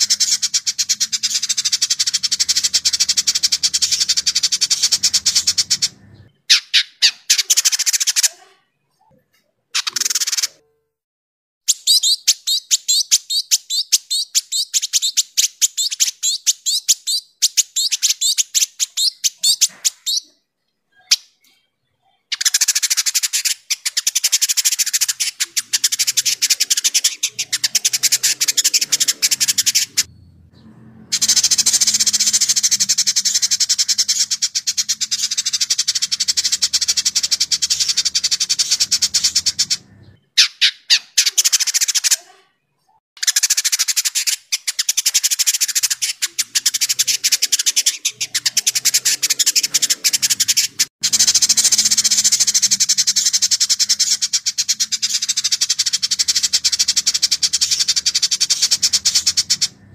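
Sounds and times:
bird chattering song: 0:00.0 - 0:10.8, 0:11.7 - 0:59.9.

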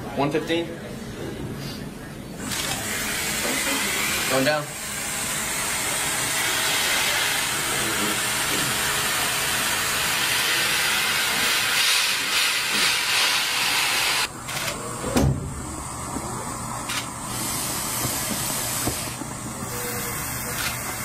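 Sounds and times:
air flowing hiss: 0:17.3 - 0:21.0.

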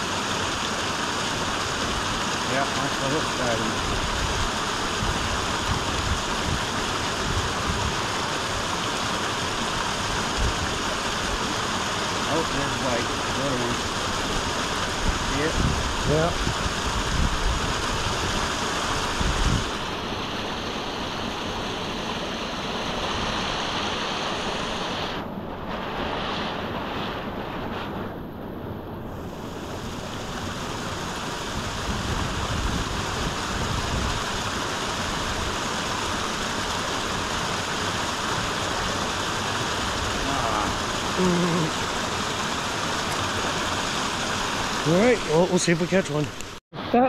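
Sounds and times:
brook rushing over cascades: 0:00.0 - 0:47.0
wind buffeting microphone: 0:14.9 - 0:18.5, 0:19.1 - 0:19.9, 0:31.5 - 0:34.3.

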